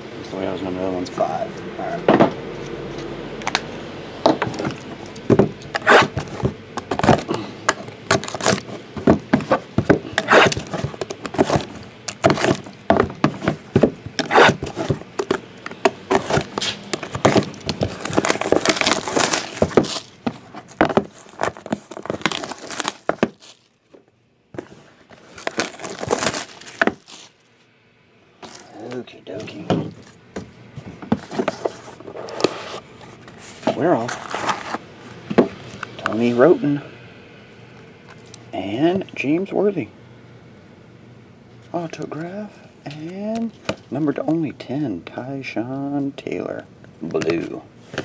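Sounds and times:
cardboard boxes knocking and scraping: 4.2 - 23.6, 24.6 - 27.1, 29.5 - 32.7.

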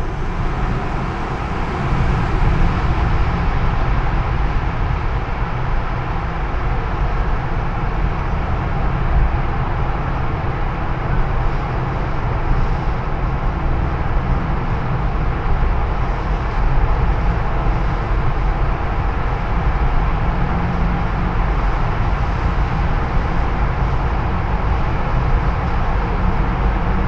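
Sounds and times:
car cabin road noise: 0.0 - 6.5.

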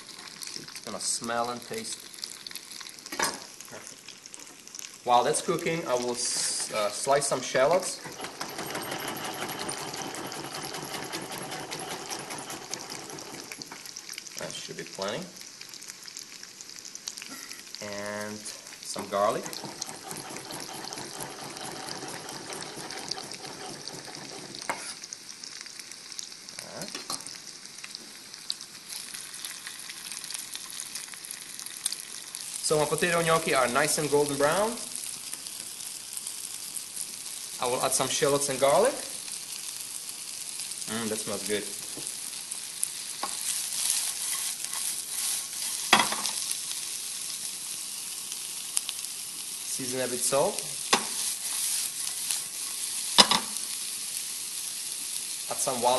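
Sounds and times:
food sizzling in oil: 0.0 - 55.9
pan being stirred: 4.5 - 14.5, 18.4 - 25.1, 43.0 - 46.7, 49.8 - 53.8.

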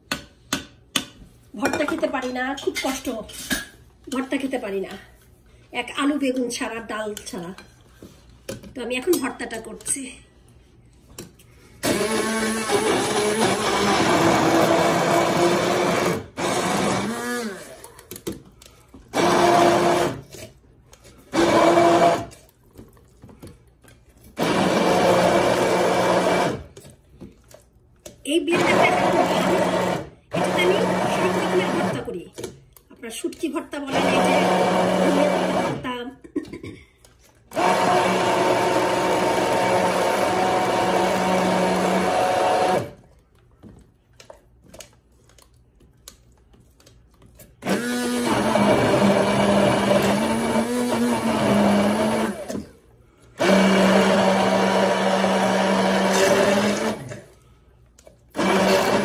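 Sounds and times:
immersion blender whirring: 11.8 - 18.0, 19.1 - 20.5, 21.2 - 22.4, 24.3 - 26.8, 28.5 - 32.2, 33.8 - 36.0, 37.5 - 43.0, 47.6 - 57.4, 58.3 - 59.0.

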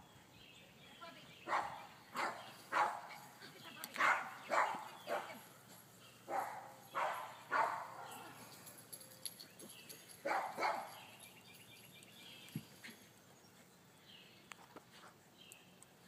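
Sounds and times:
dog barking: 1.5 - 3.1, 4.0 - 5.4, 6.3 - 8.3, 10.2 - 11.0.

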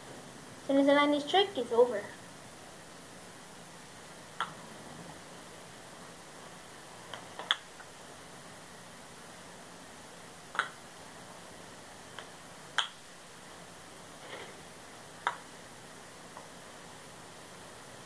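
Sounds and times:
wooden kendama ball clacking: 7.4 - 7.7, 10.5 - 10.8.

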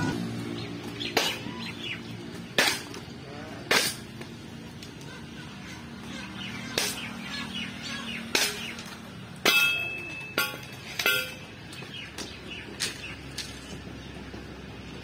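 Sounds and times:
birds chirping: 0.0 - 3.2, 4.2 - 15.0
stone weights and bamboo clacking: 2.5 - 4.4, 6.7 - 7.1, 8.2 - 13.7.

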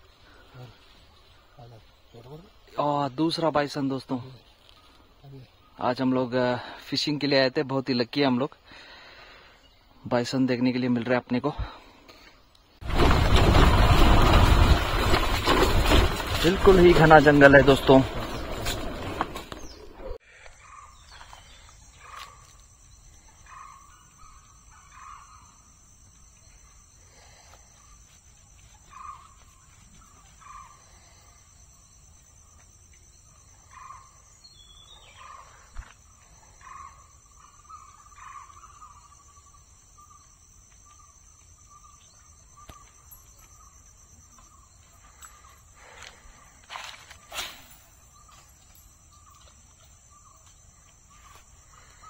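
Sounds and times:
forest birds calling: 0.0 - 52.0
high insect drone: 20.9 - 52.0.

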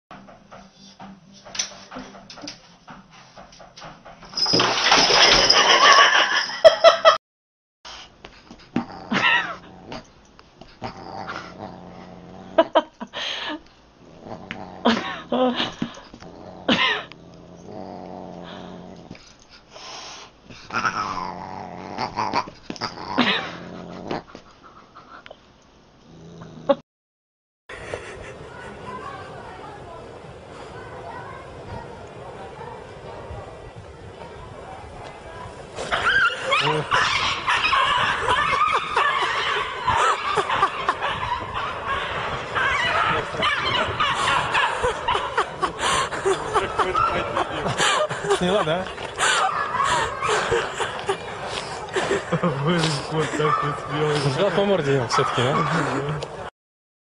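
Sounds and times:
people laughing and snickering: 5.2 - 7.2, 9.1 - 9.7, 14.8 - 17.2, 23.2 - 24.4, 27.7 - 33.6, 34.2 - 56.5
cat growling and yowling: 20.7 - 24.2
voices: 28.0 - 56.5.

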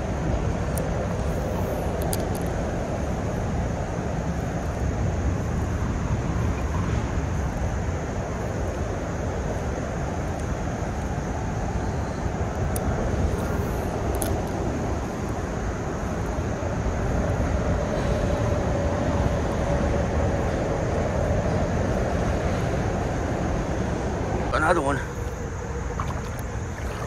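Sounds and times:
faint drone: 0.0 - 27.0
creek water rushing: 23.6 - 27.0.

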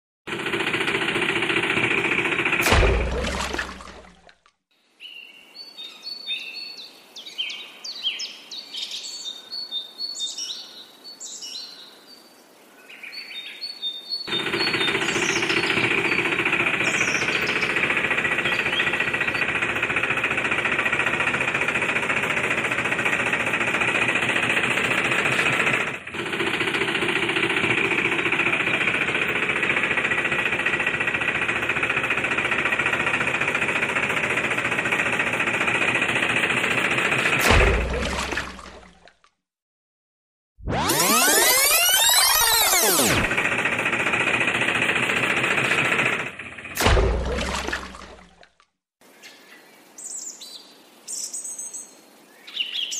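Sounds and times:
loud mechanical rattle: 0.3 - 4.3, 14.3 - 39.0, 40.6 - 48.4
birds chirping: 12.8 - 19.5.

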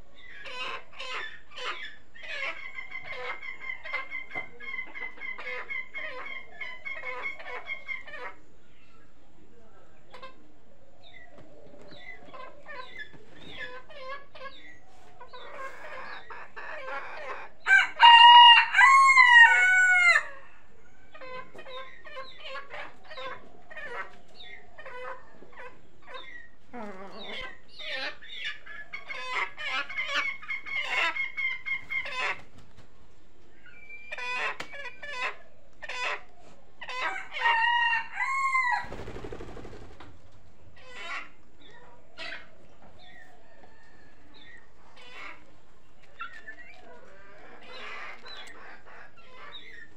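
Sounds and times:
chickens clucking: 0.0 - 49.9
rooster crowing: 17.7 - 20.4, 37.0 - 38.9.

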